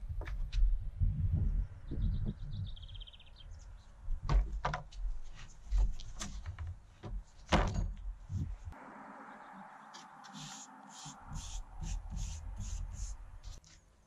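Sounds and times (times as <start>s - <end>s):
wind rumble on microphone: 0.0s - 4.4s.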